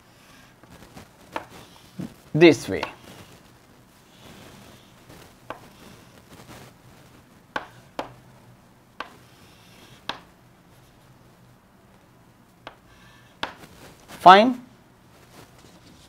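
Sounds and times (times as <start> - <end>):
chalk tapping on chalkboard: 1.3 - 1.6, 2.8 - 3.0, 5.5 - 5.7, 7.5 - 8.2, 9.0 - 9.2, 10.0 - 10.3, 13.4 - 13.7.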